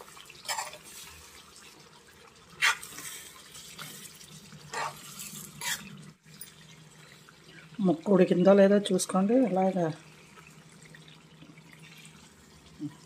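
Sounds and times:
gravy sizzling and bubbling: 0:00.0 - 0:13.0
spoon scraping pan: 0:00.4 - 0:00.9, 0:04.7 - 0:05.9.

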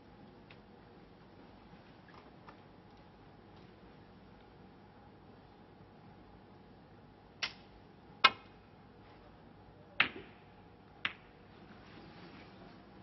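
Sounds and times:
snooker balls clacking: 0:11.0 - 0:11.4.

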